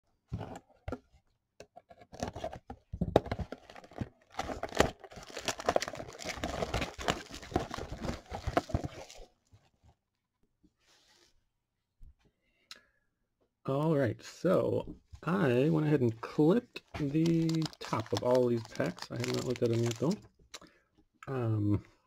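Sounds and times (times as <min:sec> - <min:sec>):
plastic wrapping crinkling and tearing: 0:03.5 - 0:09.3, 0:17.0 - 0:20.2.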